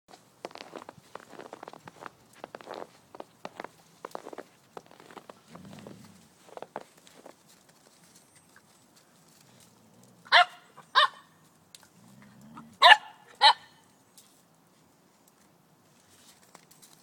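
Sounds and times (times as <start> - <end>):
dog low rumble: 5.0 - 6.6
puppy barking: 10.3 - 11.3, 12.8 - 13.8.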